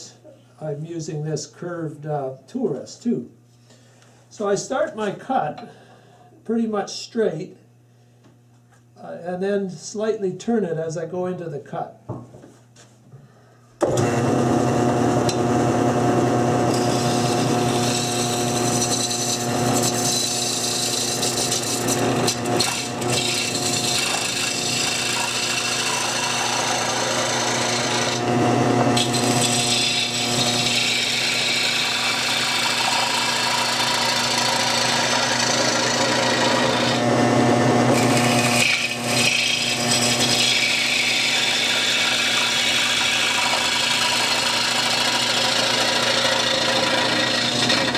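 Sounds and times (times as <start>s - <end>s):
lathe motor hum: 13.8s - 47.9s
gouge scraping wood: 37.9s - 47.9s.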